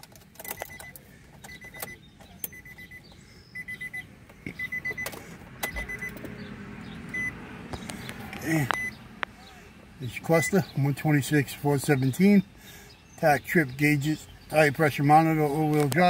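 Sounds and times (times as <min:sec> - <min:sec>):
dashboard warning chime beeping: 0:00.4 - 0:06.2, 0:07.1 - 0:07.4, 0:08.5 - 0:09.0, 0:10.4 - 0:10.7.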